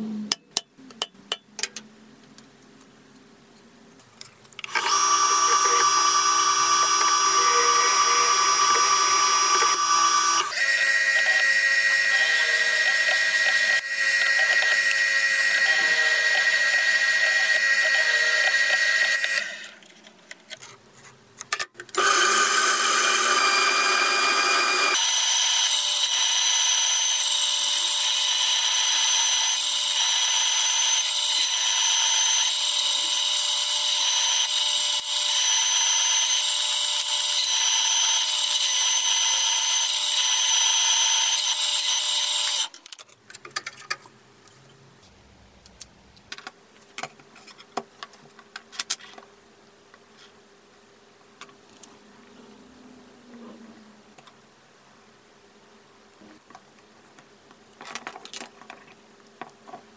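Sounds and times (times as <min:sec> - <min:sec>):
power tools whining: 0:04.6 - 0:19.8, 0:22.0 - 0:42.8.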